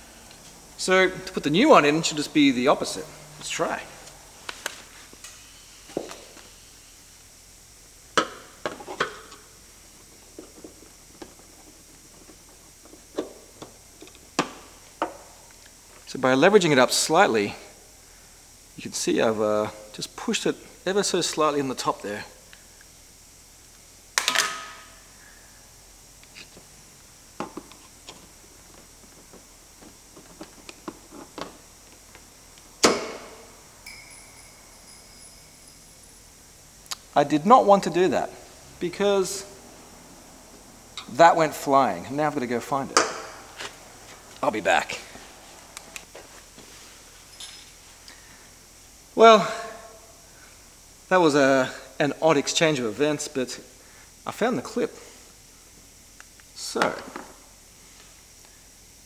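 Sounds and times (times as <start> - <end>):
faint steady high tone: 33.8 - 37.7, 47.2 - 47.8.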